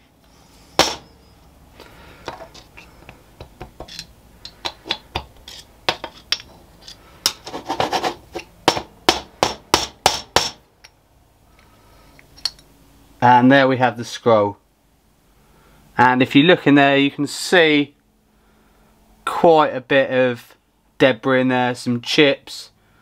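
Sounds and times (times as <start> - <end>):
metal scraping: 3.8 - 8.5.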